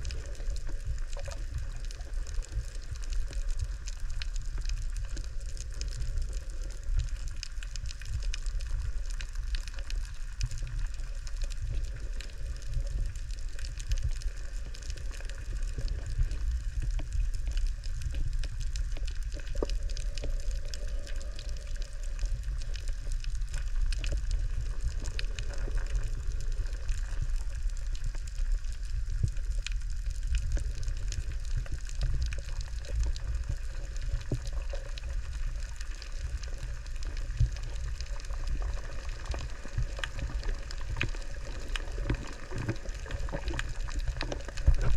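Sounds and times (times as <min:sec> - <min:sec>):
faint crackling clicks: 0:00.0 - 0:44.9
underwater rumble of moving water: 0:00.0 - 0:44.9.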